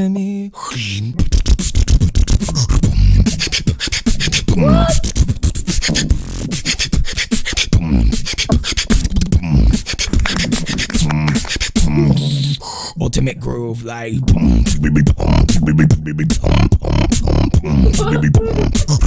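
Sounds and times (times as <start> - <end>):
sliding vocal tones: 0.0 - 19.0
person beatboxing: 0.6 - 19.0.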